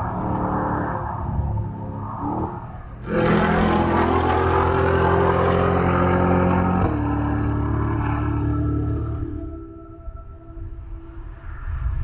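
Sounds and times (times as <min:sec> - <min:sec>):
car engine running hard: 0:00.0 - 0:09.4.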